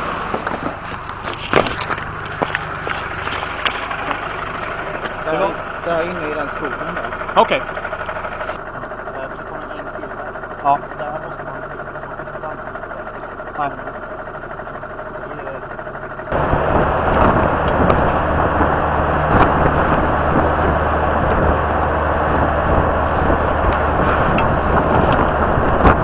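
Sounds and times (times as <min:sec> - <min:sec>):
car engine running quietly: 0:00.0 - 0:26.0
road noise: 0:00.0 - 0:26.0
wind noise on microphone: 0:16.4 - 0:26.0.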